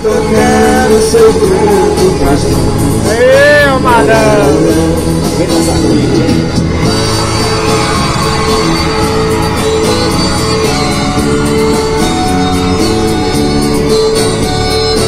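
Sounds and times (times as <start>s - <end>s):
instrumental music with steady beat: 0.0s - 15.0s.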